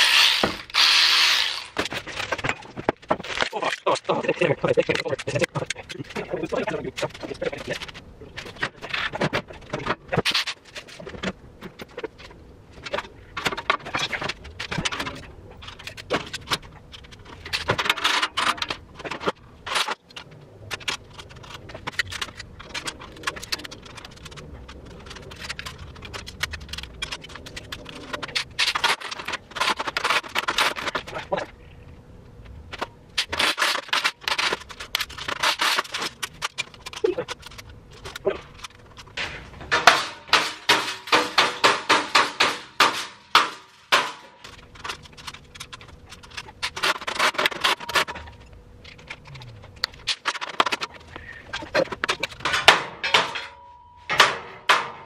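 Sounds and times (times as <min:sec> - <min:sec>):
metal panels and bolts clattering: 0:32.7 - 0:55.0.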